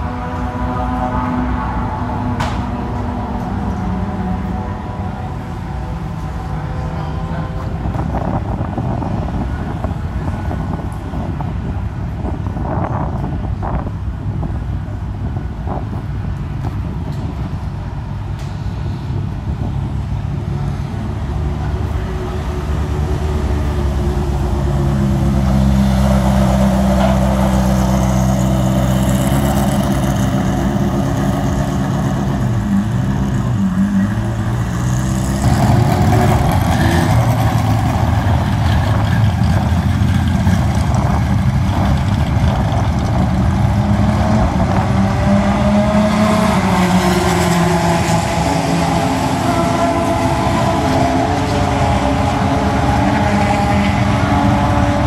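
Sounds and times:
rough engine moving off: 0:21.5 - 0:55.0
engine revving: 0:22.7 - 0:55.0.

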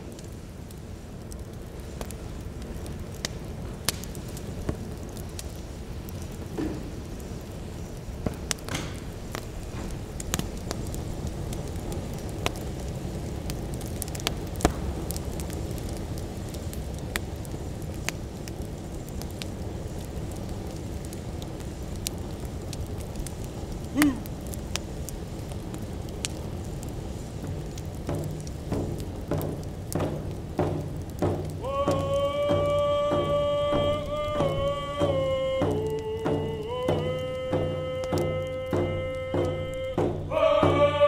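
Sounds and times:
wood fire crackling: 0:00.0 - 0:41.0
low rumble: 0:27.0 - 0:41.0.

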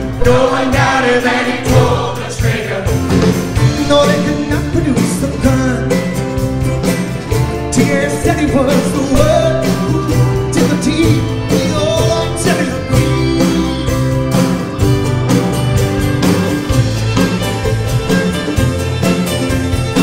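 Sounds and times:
steady beat: 0:00.0 - 0:12.9
strummed acoustic guitar: 0:00.0 - 0:20.0
violin: 0:10.9 - 0:20.0.

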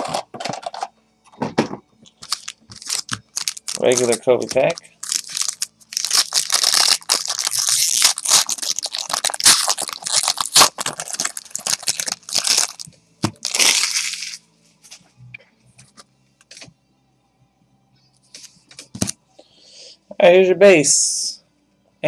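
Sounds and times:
wrapper crinkling and tearing: 0:00.0 - 0:00.8, 0:02.2 - 0:14.4.

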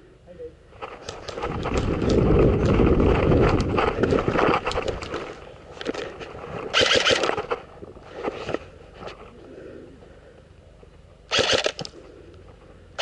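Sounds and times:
wind buffeting microphone: 0:00.9 - 0:05.5.

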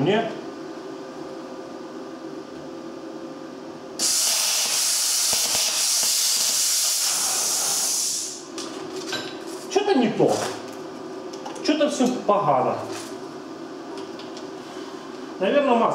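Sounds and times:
plasma cutter torch hissing: 0:04.0 - 0:08.4.

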